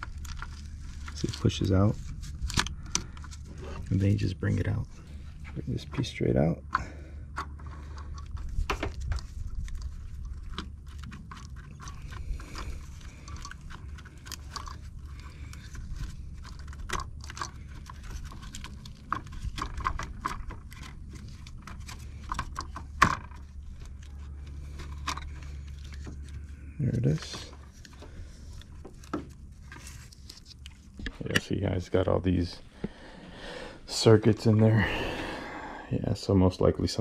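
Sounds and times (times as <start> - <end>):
plastic clicks and scrapes: 0.0 - 6.1, 6.7 - 31.5.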